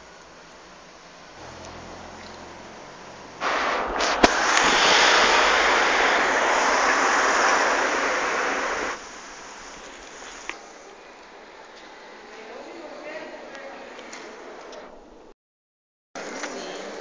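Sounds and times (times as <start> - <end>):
loud rushing hiss: 0.0 - 12.1.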